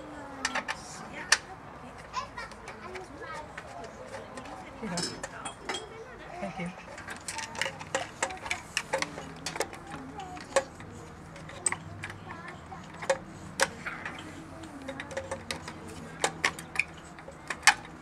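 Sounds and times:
screwdriver and metal clicks: 6.9 - 18.0.

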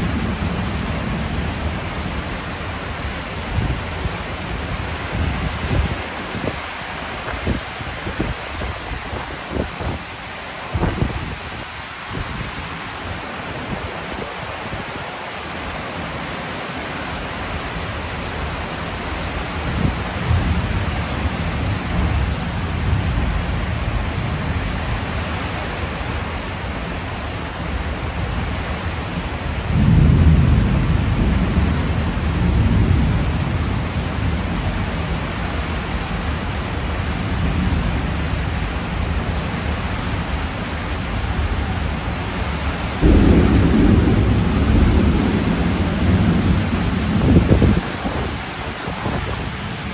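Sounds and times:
heavy rain on a metal roof: 0.0 - 49.9
thunder rumbling: 29.5 - 35.2, 41.2 - 49.9.

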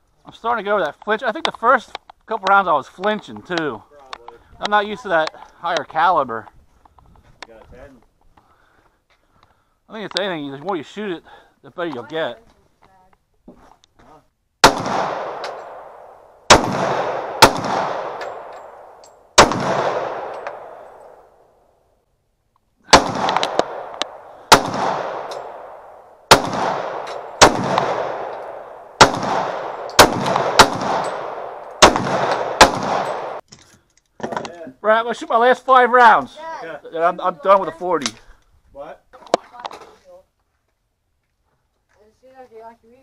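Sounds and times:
pistol shots with echo: 14.6 - 21.3, 22.9 - 33.4.

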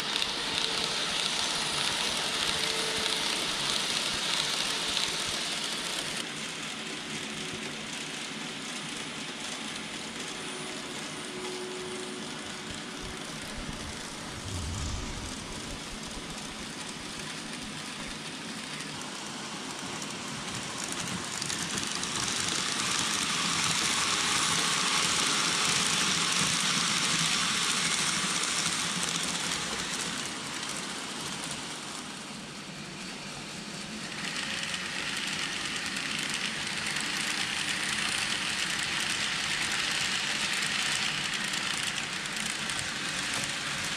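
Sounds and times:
model train wheels hissing on rail: 0.0 - 43.9.

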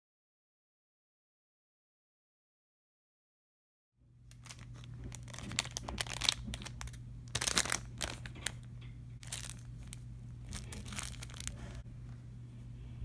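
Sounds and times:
plastic packaging crinkling: 4.3 - 11.8.

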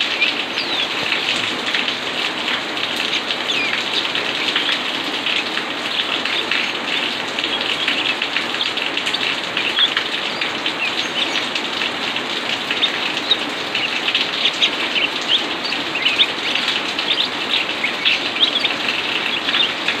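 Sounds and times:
high bird chirps: 0.0 - 1.3, 3.0 - 4.9, 5.9 - 11.6, 12.6 - 20.0.

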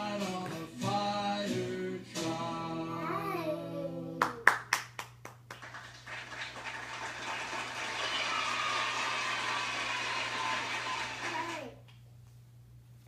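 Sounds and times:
children's song from tv: 0.0 - 4.5, 6.7 - 11.8
hand claps: 4.2 - 12.0.

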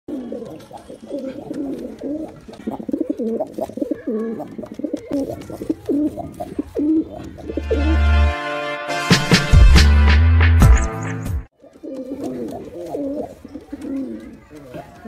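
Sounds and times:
pigeons cooing: 0.1 - 8.0, 11.6 - 15.0
music with heavy bass: 7.8 - 11.5.

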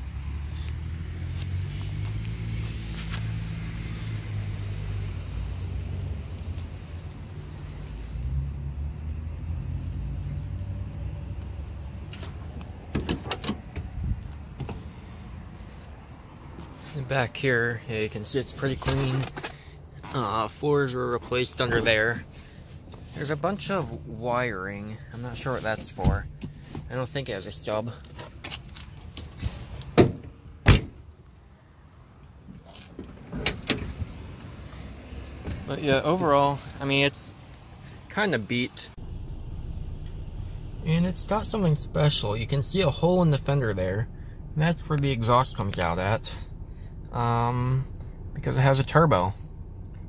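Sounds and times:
low steady rumble: 0.0 - 28.1, 33.1 - 50.0
car door latch clicks and clacks: 12.9 - 13.9
car door thumping shut: 30.0 - 31.0.

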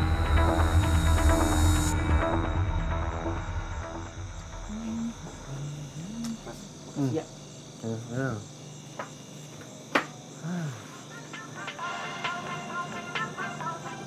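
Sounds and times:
crickets chirping: 0.0 - 14.0
man making wordless sounds: 4.6 - 7.1.

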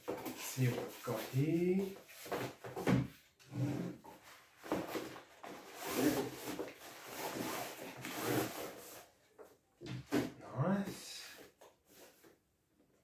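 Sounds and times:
fabric case scraping in cardboard box: 5.5 - 9.0.

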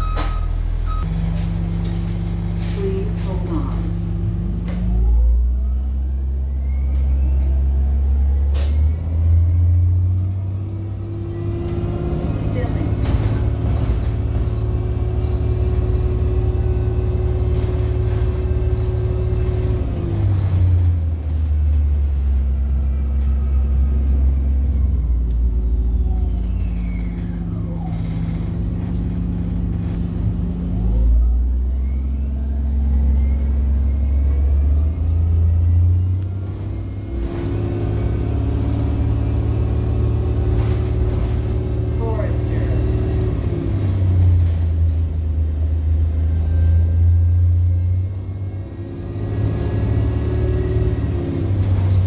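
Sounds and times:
bus engine running: 0.0 - 52.0.

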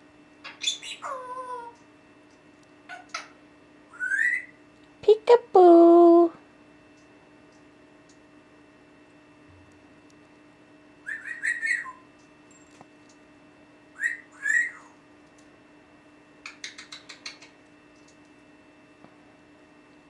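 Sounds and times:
parrot whistling and chirping: 0.5 - 1.6, 3.9 - 4.6, 11.0 - 12.1, 14.0 - 15.0
parrot clicks: 16.4 - 18.2.

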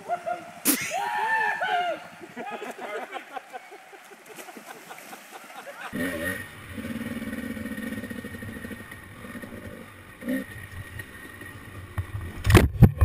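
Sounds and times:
off-road vehicle engine running: 6.0 - 11.8.

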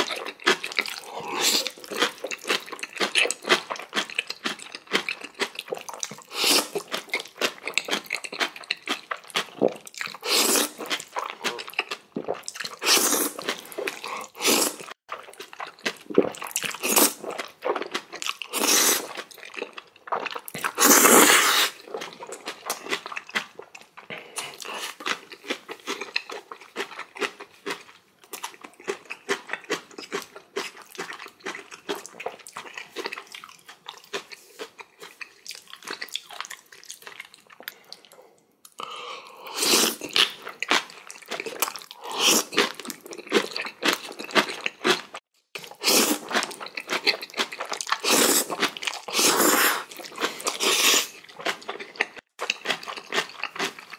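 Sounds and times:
wet chewing and crunching: 0.0 - 38.9, 39.6 - 53.9
noodle slurps: 6.1 - 6.9, 9.5 - 15.0, 18.5 - 19.2, 20.5 - 21.9, 39.4 - 40.3, 45.6 - 46.5, 47.7 - 51.2.

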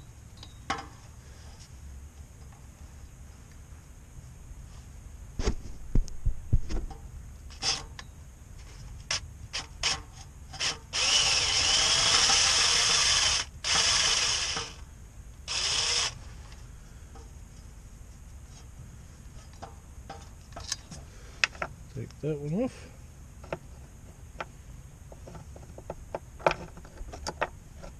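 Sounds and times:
power drill running: 10.6 - 14.8, 15.5 - 16.2.

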